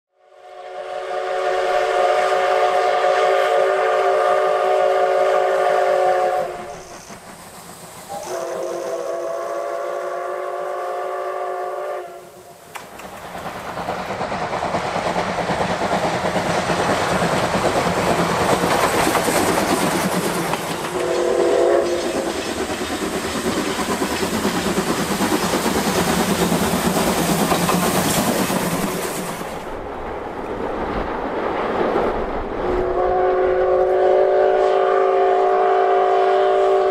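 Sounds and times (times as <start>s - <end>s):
steam whistle blasts: 0.2s - 7.1s, 8.1s - 12.6s, 20.9s - 22.4s, 32.8s - 36.9s
locomotive exhaust chuffing: 12.9s - 29.4s.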